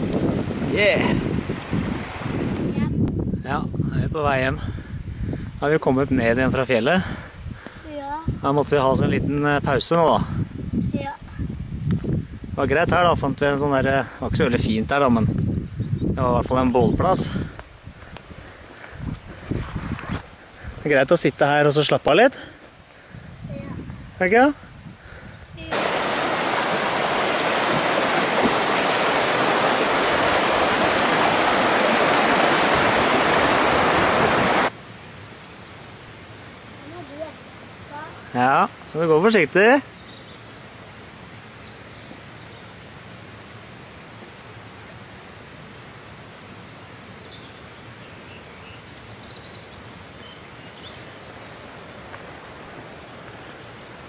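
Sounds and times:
water rushing over rocks: 0.0s - 2.8s, 25.6s - 34.8s
stream running over stones: 0.0s - 2.9s, 25.6s - 34.8s, 49.6s - 54.0s.

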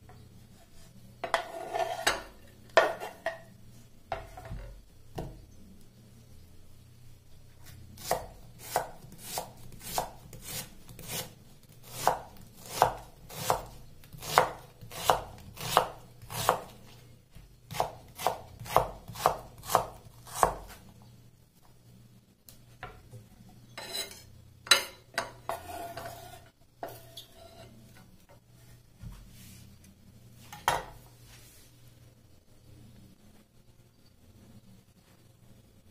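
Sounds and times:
knife chopping on wooden board: 8.0s - 11.3s, 11.9s - 16.7s, 17.7s - 20.8s.

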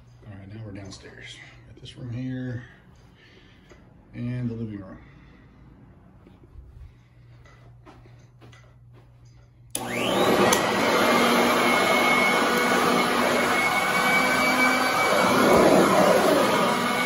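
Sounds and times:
vacuum cleaner motor whining: 9.7s - 17.0s.

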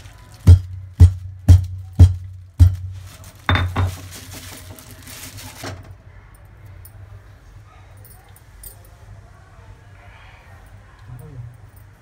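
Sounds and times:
metal cookware clanking: 3.5s - 4.7s.

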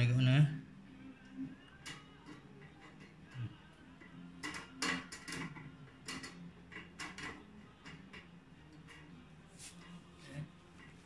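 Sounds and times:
steel parts clicking and tapping: 1.7s - 9.2s.

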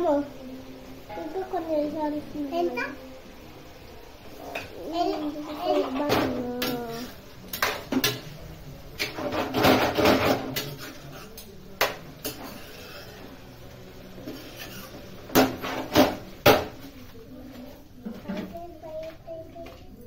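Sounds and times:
spoon scraping metal frying pan: 12.2s - 13.3s, 14.2s - 15.9s.

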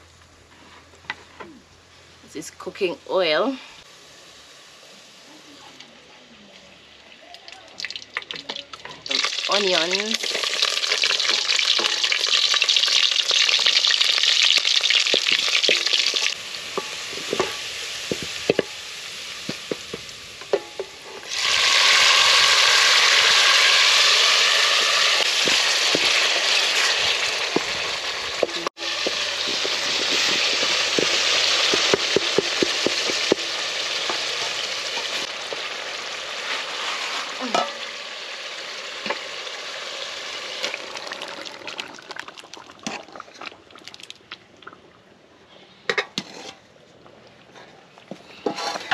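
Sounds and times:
onions sizzling in hot oil: 2.8s - 5.9s, 7.8s - 43.1s
wooden spoon knocking on pot: 28.4s - 33.5s.

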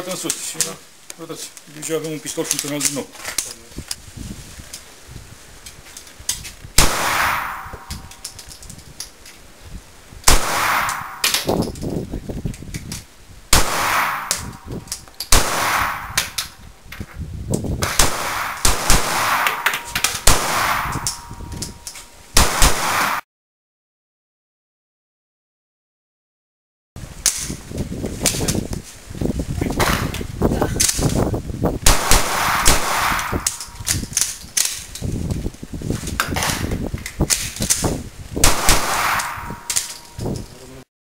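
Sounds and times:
pistol shots with echo: 6.8s - 8.1s, 10.3s - 11.6s, 13.5s - 14.6s, 15.3s - 16.4s, 17.8s - 21.3s, 22.4s - 23.2s, 31.9s - 33.8s, 38.4s - 40.0s.

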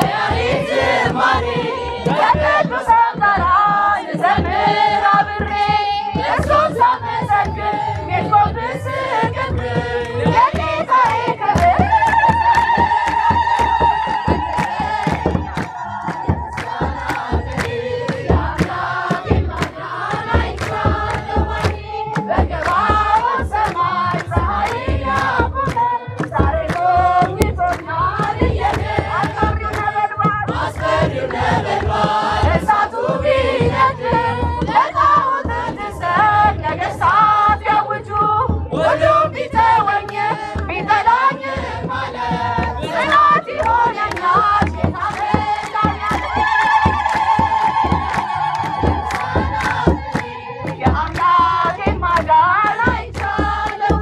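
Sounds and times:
hand drum beat: 0.0s - 54.0s
women and children singing a hymn: 0.0s - 54.0s
hand clapping: 9.5s - 30.2s, 42.6s - 54.0s.

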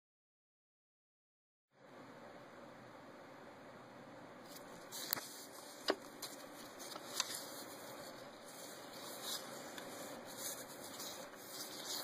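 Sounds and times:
faint handling noise: 4.5s - 12.0s.

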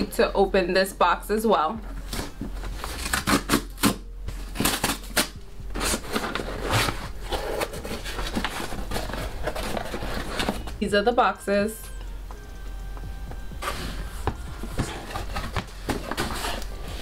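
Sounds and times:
cardboard box crackling and rustling: 1.9s - 10.8s, 13.6s - 17.0s.

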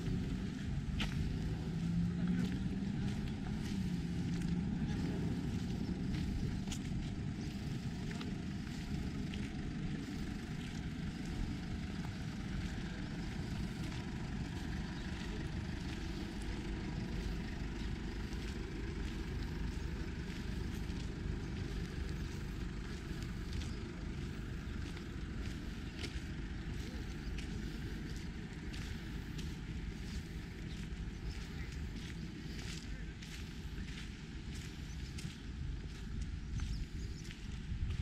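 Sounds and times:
wind buffeting microphone: 28.1s - 38.0s.

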